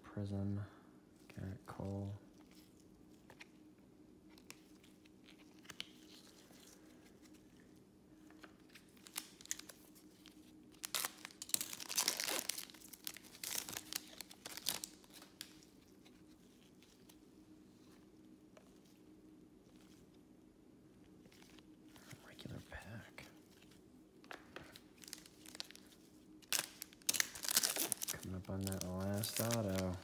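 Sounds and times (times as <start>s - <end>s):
foil wrapper tearing and crinkling: 8.6s - 15.7s, 24.8s - 30.0s
cards shuffling clicks: 26.5s - 30.0s.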